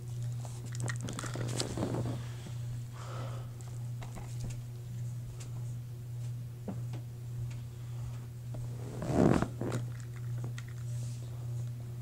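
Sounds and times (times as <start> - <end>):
low electrical hum: 0.0 - 12.0
crackling rustle: 0.2 - 2.4.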